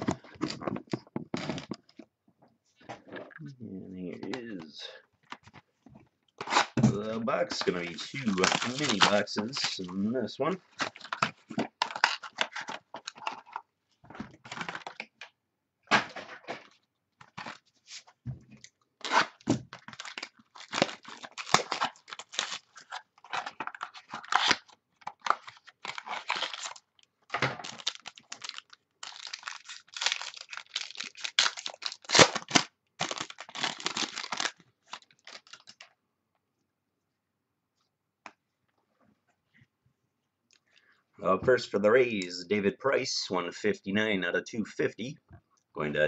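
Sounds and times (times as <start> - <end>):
packaging ripping and crinkling: 6.4 - 10.0, 10.7 - 13.6, 14.4 - 15.1, 19.0 - 35.9.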